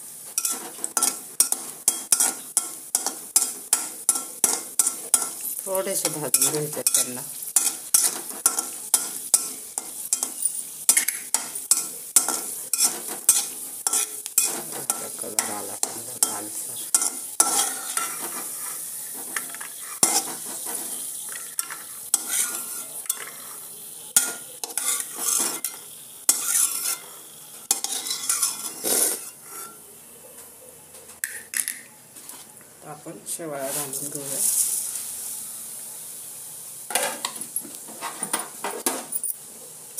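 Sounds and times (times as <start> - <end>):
nuts sizzling in fat: 0.0 - 39.9
metal spatula scraping a pan: 0.3 - 29.9.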